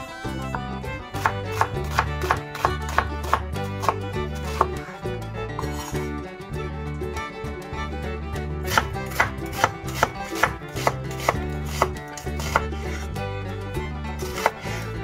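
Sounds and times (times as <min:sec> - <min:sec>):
knife knocking on cutting board: 0:01.2 - 0:04.8, 0:08.7 - 0:13.0.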